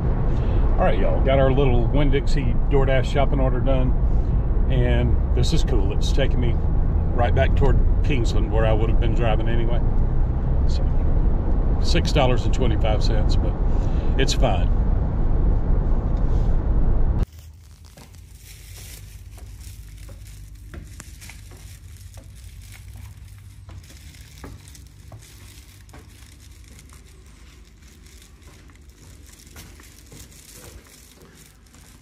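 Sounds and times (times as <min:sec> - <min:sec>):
low steady hum: 0:00.0 - 0:32.0
shopping bag crinkling: 0:17.2 - 0:32.0.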